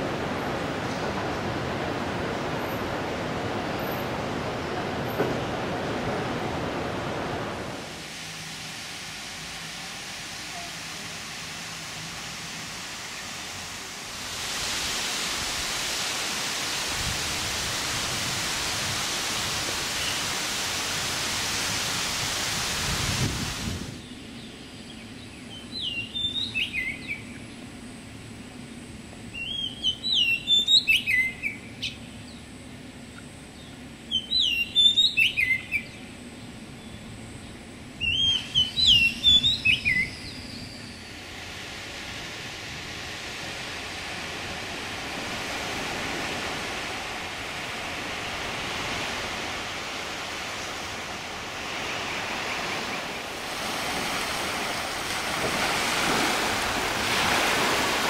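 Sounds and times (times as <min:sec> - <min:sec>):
steady rushing noise: 0:00.0 - 0:24.4, 0:40.8 - 0:58.0
songbird whistling: 0:25.5 - 0:27.2, 0:29.4 - 0:32.0, 0:34.1 - 0:36.0, 0:38.0 - 0:41.2.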